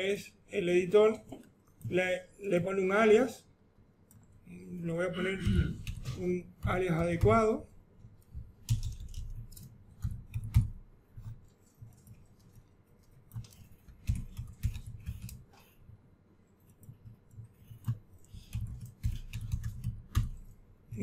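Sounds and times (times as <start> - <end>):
computer keyboard typing: 4.0 - 16.0, 16.6 - 21.0.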